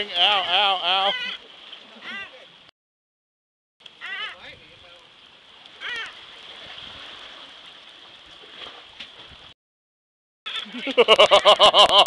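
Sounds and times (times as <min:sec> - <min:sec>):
seabird distress calls: 0:00.3 - 0:02.4, 0:04.0 - 0:04.4, 0:05.8 - 0:06.2
waves washing against rocks: 0:05.3 - 0:08.9.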